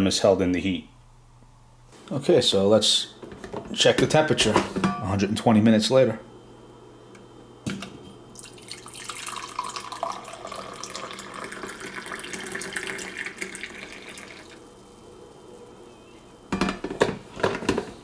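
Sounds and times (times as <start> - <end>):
coffee pouring into cup: 8.4 - 15.6.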